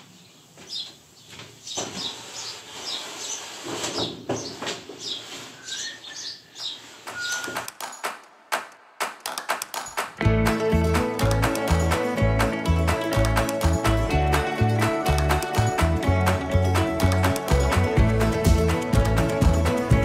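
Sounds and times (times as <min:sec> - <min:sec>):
sharp clicks and knocks: 0:07.0 - 0:10.2
music with a steady beat: 0:07.5 - 0:20.0.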